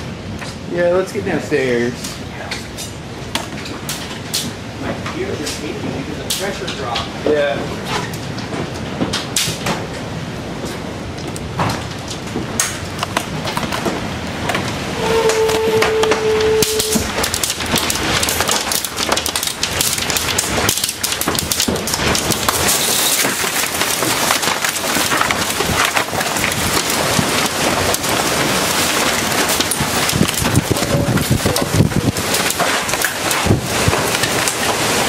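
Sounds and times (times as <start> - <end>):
wind and heavy rain: 0.0 - 35.0
crackling hits: 7.8 - 35.0.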